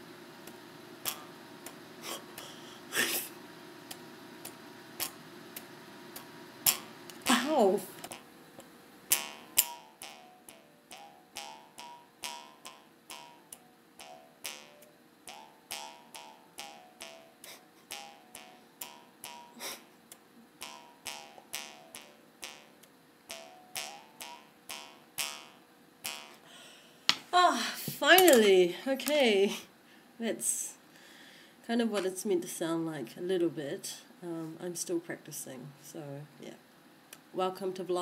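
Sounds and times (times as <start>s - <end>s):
jaw harp twanging: 9.1s - 19.6s.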